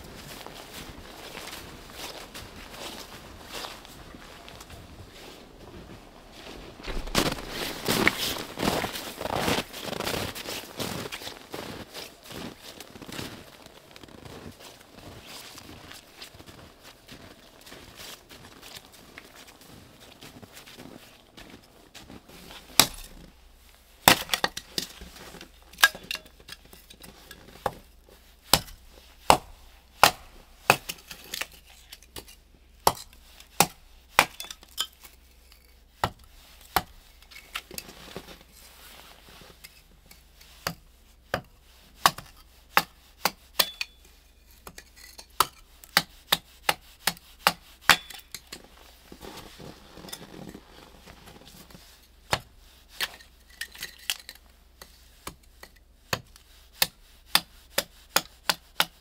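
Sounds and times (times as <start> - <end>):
hatchet chopping wood: 22.7 - 23.2, 24.0 - 24.9, 28.5 - 31.5, 32.2 - 34.6, 36.0 - 37.0, 40.6 - 44.0, 45.4 - 48.4, 52.3 - 52.5, 55.2 - 59.0.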